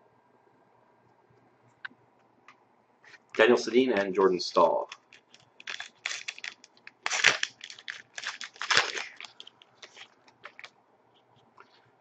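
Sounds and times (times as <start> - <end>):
plastic wrapper crinkling and tearing: 4.6 - 10.8
cards rustling and sliding: 4.8 - 10.7.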